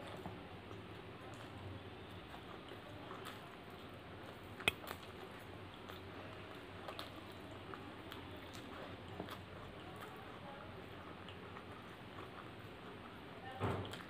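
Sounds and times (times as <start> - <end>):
person chewing food: 0.0 - 13.3
wet mouth and hand noises: 0.0 - 14.0.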